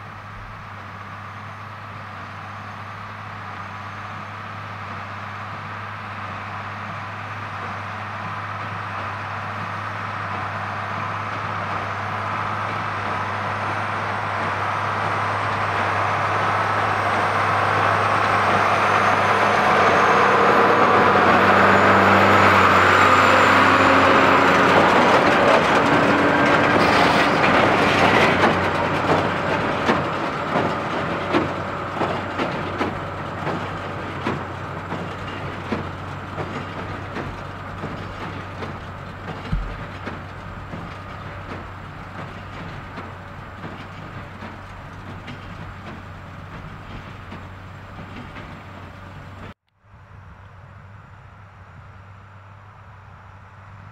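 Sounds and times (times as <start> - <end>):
tractor diesel engine under load: 0.0 - 53.9
baler clunking: 11.0 - 49.5.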